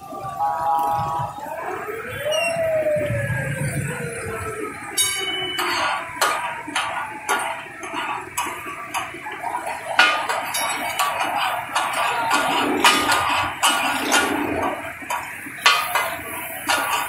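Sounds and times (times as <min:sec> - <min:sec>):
hot oil sizzling: 0:04.7 - 0:17.0
metal spatulas clanging on griddle: 0:05.0 - 0:17.0.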